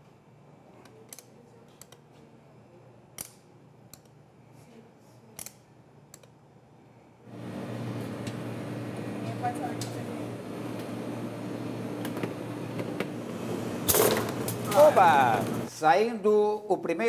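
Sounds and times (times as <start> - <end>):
low machine hum: 6.6 - 15.7.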